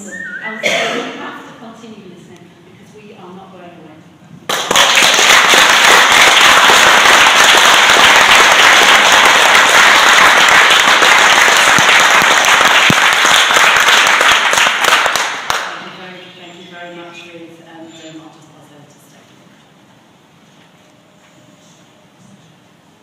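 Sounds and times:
loud applause: 4.5 - 15.8.

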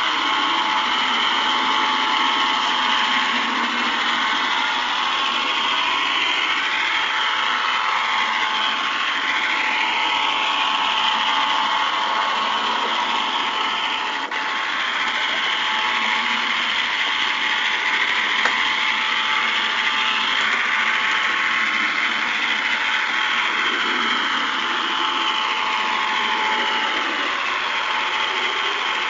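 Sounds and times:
model train motor whirring: 0.0 - 29.0.

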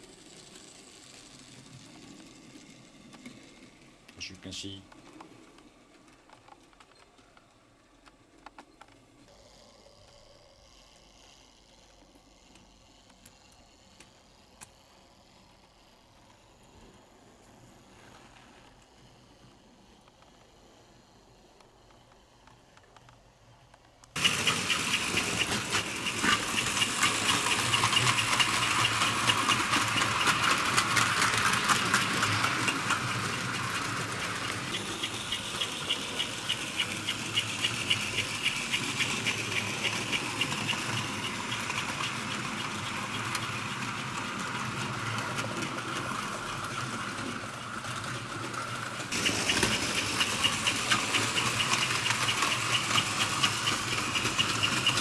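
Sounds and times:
model train motor whirring: 0.0 - 6.9, 8.2 - 55.0
fast steady clicks: 21.5 - 55.0.

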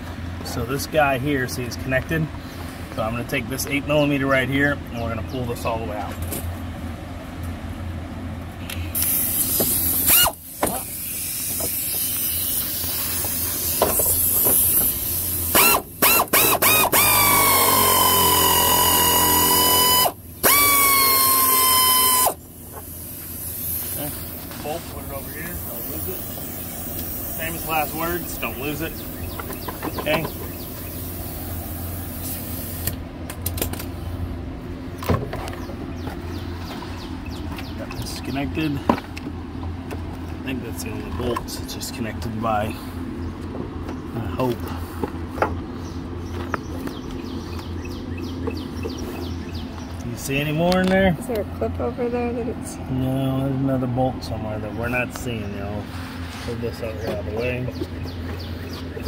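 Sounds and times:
steady low hum: 0.0 - 59.0
power tool motor whirring: 9.0 - 22.4.

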